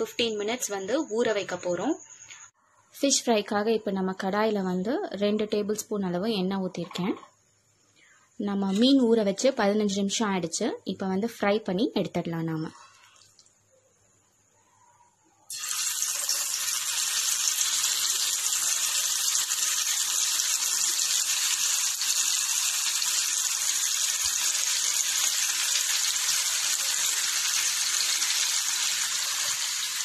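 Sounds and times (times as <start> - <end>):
fish sizzling in hot oil: 15.5 - 30.0.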